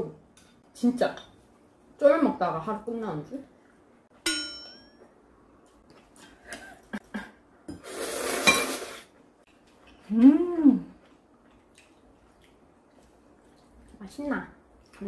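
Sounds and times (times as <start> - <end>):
person humming mmm: 10.1 - 11.0.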